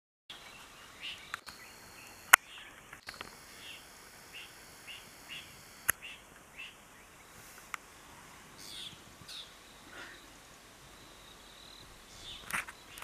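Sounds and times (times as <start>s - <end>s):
bird chirping: 0.3s - 13.0s
faint background hiss: 0.3s - 13.0s
sharp clicks: 1.2s - 6.5s.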